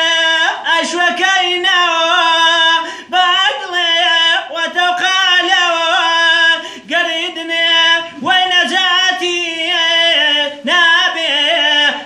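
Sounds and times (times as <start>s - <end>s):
man singing unaccompanied: 0.0s - 12.0s.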